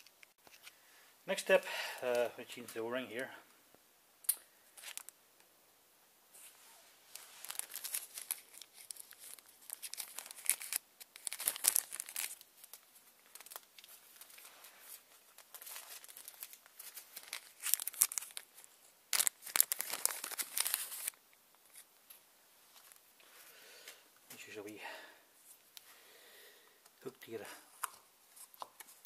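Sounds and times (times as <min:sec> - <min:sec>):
plastic bag crinkling: 0:04.8 - 0:05.2, 0:07.1 - 0:21.9.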